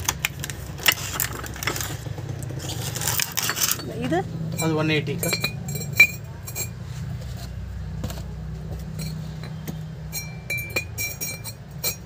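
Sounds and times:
ceramic crockery clinking: 0:02.8 - 0:06.8, 0:08.8 - 0:12.0.

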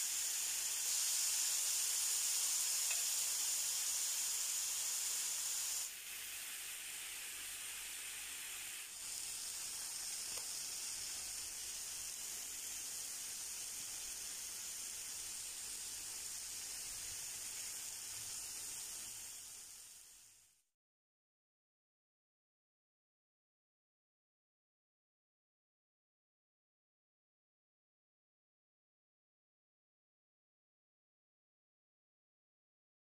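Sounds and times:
chicken sizzling on griddle: 0:00.0 - 0:20.7.

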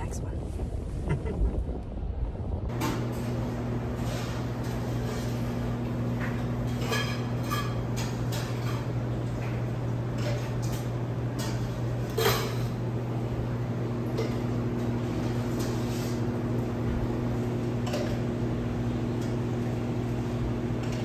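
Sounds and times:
steady low hum: 0:00.0 - 0:21.0
dishes and utensils clinking: 0:04.1 - 0:12.8, 0:14.0 - 0:14.9.

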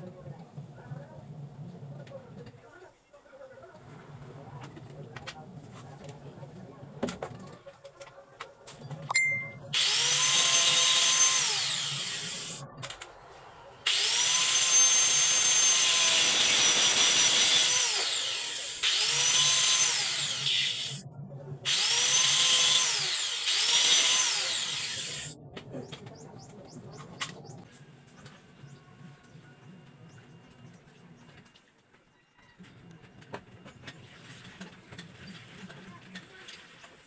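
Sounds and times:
angle grinder whine: 0:09.2 - 0:12.7, 0:13.8 - 0:21.0, 0:21.7 - 0:25.4
grinder cutting plastic bottle: 0:09.8 - 0:13.2, 0:13.9 - 0:21.0, 0:21.7 - 0:25.4.

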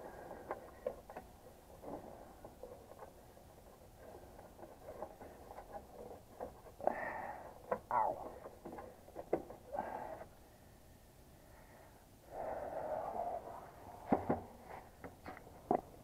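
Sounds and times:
rustling noise: 0:13.7 - 0:16.0.

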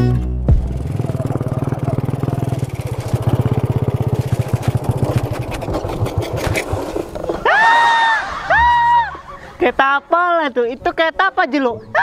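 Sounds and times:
small motorbike engine chugging: 0:00.6 - 0:07.5.

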